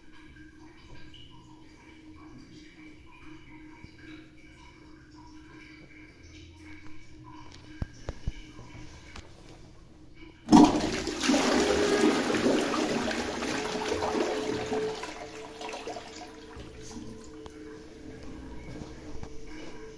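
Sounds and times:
toilet flushing: 10.4s - 19.9s
water swirling and gurgling: 10.5s - 19.9s.

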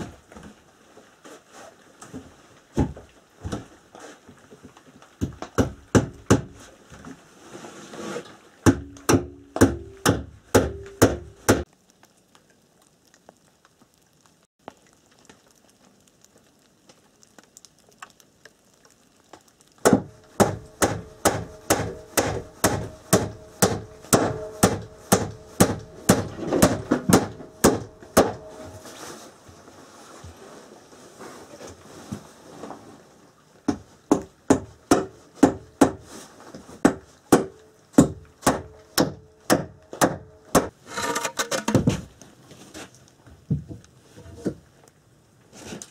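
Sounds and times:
hammer driving nails into wood: 19.9s - 28.4s.

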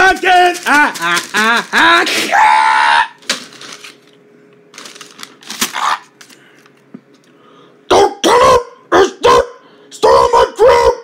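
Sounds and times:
objects rustling and clicking: 0.0s - 1.8s, 3.2s - 7.3s
person's voice: 0.0s - 2.0s.

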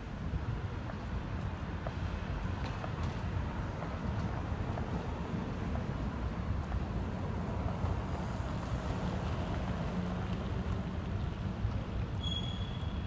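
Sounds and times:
cars driving past: 1.7s - 13.0s
short high-pitched whistle: 12.2s - 13.0s.

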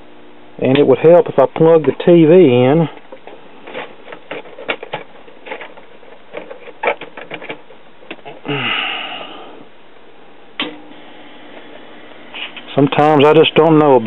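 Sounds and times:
plug and cord rattling: 3.0s - 8.4s.

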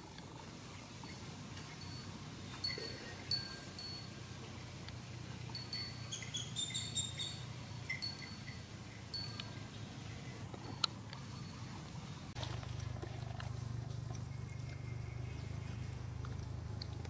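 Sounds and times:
low outdoor rumble: 0.0s - 17.0s
high-pitched chirps: 5.6s - 8.6s.

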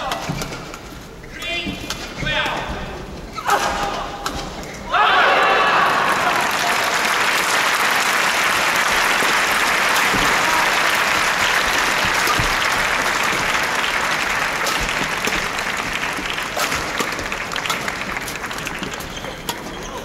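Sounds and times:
crowd applauding: 5.4s - 19.6s.

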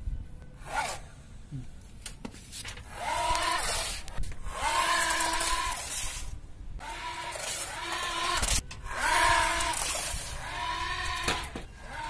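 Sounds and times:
small motor spinning propeller: 2.9s - 12.0s.

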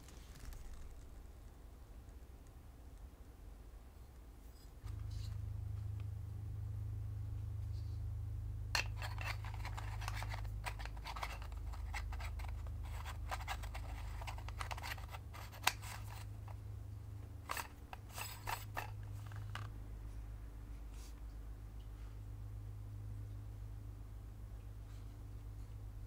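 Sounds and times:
steady low hum: 0.0s - 26.0s
lens hood clicks and scrapes: 8.8s - 16.6s, 17.4s - 19.7s.

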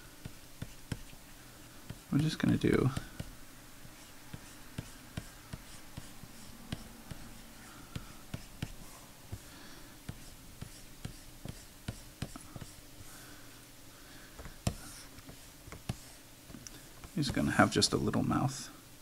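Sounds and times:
stylus scratching on tablet: 0.2s - 1.2s, 1.9s - 9.4s, 10.1s - 12.8s, 14.6s - 16.2s.

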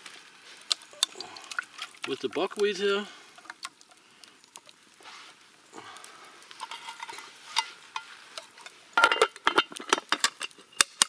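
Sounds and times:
stirring and scraping in metal pot: 6.5s - 11.0s
clinks and knocks: 9.0s - 11.0s.

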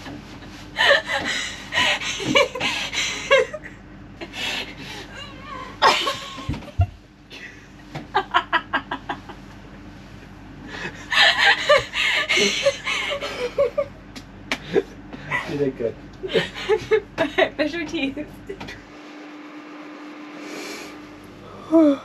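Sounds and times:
people laughing: 0.8s - 3.7s, 5.6s - 9.8s, 10.7s - 14.0s, 14.6s - 17.6s.

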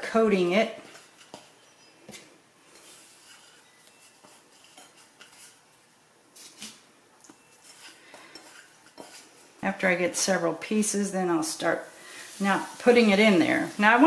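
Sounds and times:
soft rubbing in flour: 0.0s - 14.0s
bowl scraping: 2.7s - 5.6s, 6.4s - 9.6s.

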